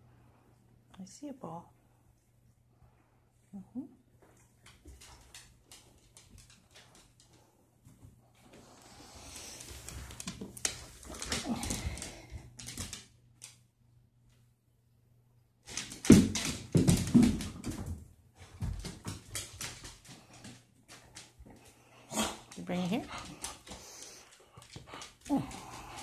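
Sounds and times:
dog claws clicking on wood floor: 0:04.6 - 0:07.5, 0:09.3 - 0:13.6, 0:15.6 - 0:21.6.

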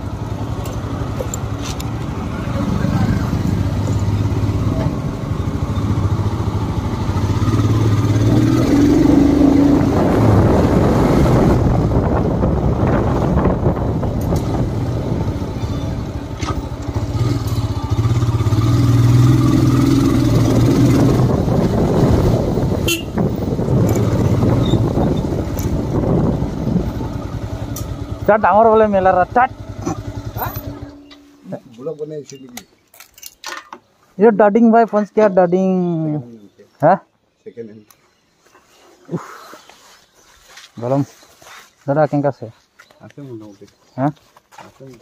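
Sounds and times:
motorcycle engine running: 0:00.0 - 0:31.5.

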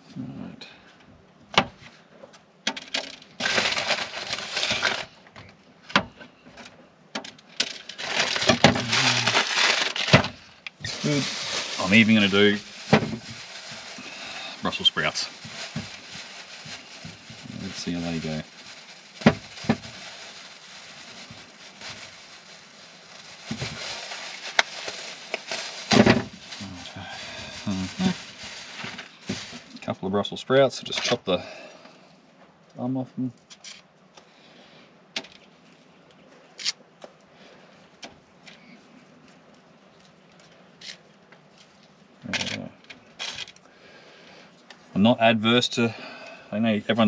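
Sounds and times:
paper bag crinkling and rustling: 0:02.8 - 0:05.6, 0:07.4 - 0:29.9.

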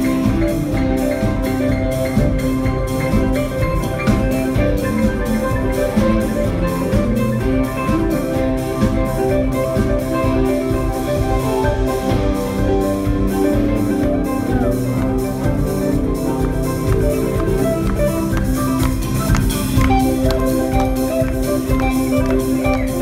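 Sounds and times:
live band playing instrumental: 0:00.0 - 0:23.0.

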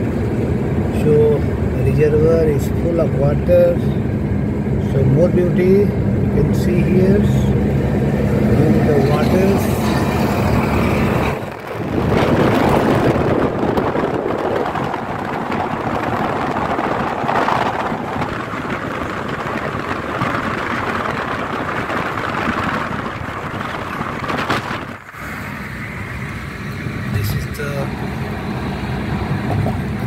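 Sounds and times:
road and wind noise in car: 0:00.0 - 0:30.0.

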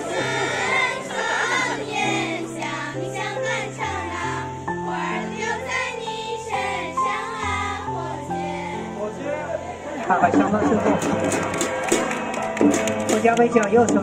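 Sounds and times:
women singing in unison: 0:00.0 - 0:08.9
accompaniment music low notes: 0:00.0 - 0:14.0.

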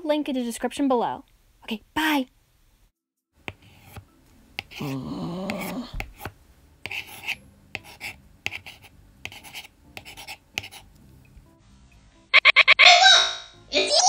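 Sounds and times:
pencil scribbling strokes: 0:03.4 - 0:11.0.

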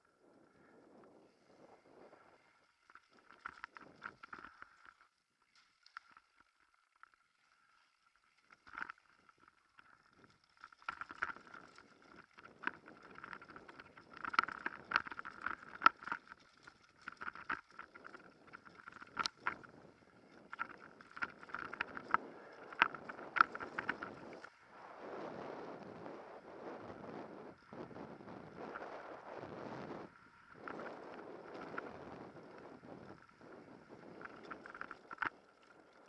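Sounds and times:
mountain bike rattling on dirt: 0:08.2 - 0:24.8, 0:30.1 - 0:36.0.

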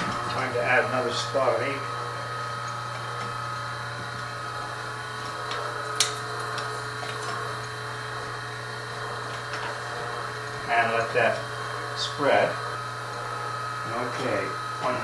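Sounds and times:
printing press motor hum: 0:00.0 - 0:15.0.

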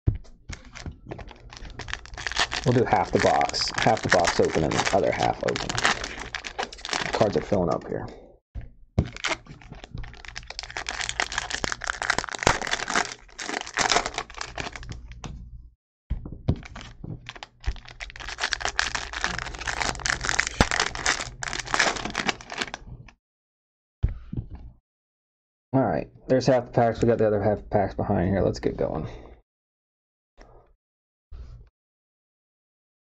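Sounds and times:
foil wrappers crinkling: 0:00.5 - 0:07.9, 0:09.0 - 0:15.0, 0:16.6 - 0:22.8.

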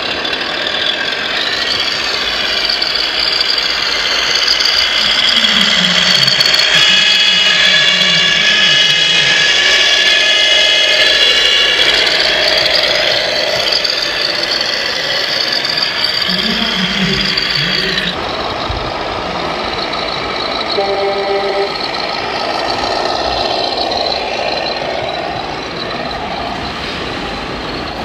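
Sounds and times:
toy truck running noise: 0:00.0 - 0:19.1
electric drive whine: 0:11.8 - 0:22.8.

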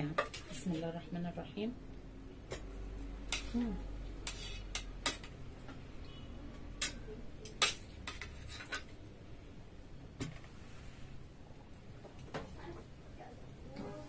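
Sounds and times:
cutlery clinking on plates: 0:04.2 - 0:05.4, 0:06.8 - 0:08.9.

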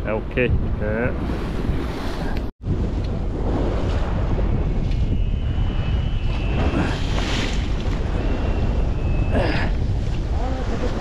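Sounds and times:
wind on microphone: 0:00.0 - 0:11.0
faint high whistle: 0:04.9 - 0:07.4, 0:08.1 - 0:09.4
sea waves: 0:05.1 - 0:11.0.

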